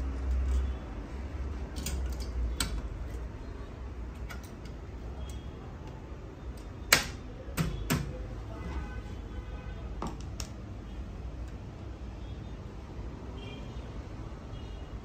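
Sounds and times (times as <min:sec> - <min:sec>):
light clicks of metal parts: 0:00.0 - 0:03.4, 0:04.1 - 0:06.7.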